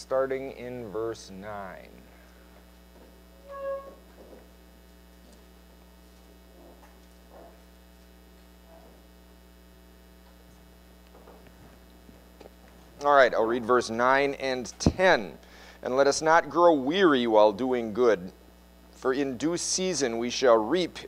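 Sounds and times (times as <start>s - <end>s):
electrical hum: 0.0s - 21.0s
brief squeak: 3.4s - 4.0s.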